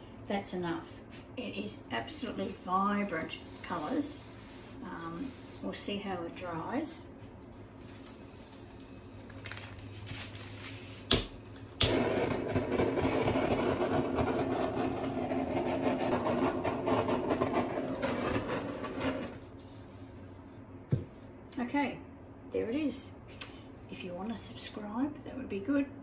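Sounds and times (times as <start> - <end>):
gas torch flame hissing: 7.8 - 9.5, 11.0 - 19.4.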